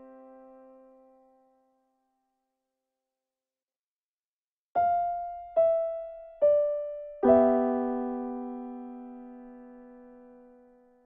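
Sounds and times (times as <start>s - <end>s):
solo piano notes and chord: 0.0s - 1.7s, 4.8s - 11.0s.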